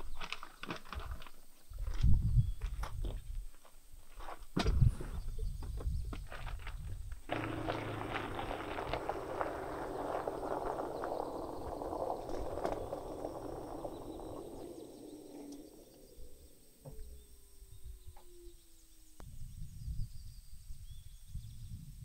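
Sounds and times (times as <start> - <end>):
tyres crunching on gravel: 6.1 - 17.2
low rumble: 7.3 - 18.1
faint falling whine: 7.3 - 19.4.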